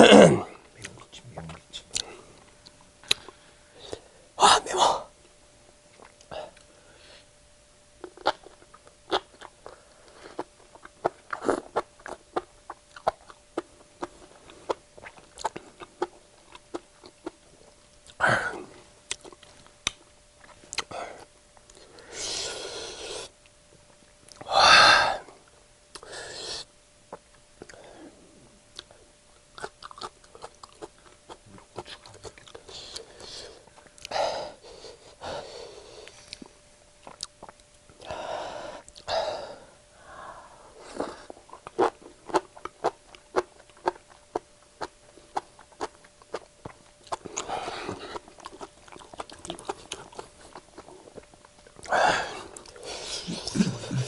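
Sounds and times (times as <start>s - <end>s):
wet chewing and slurping: 8.0s - 9.6s, 40.9s - 51.9s
person gasping and wheezing: 51.9s - 54.0s.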